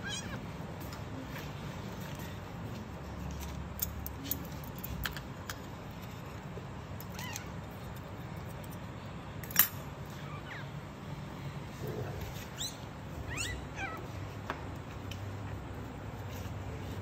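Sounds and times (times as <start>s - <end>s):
puppy squeaking: 12.5s - 14.1s.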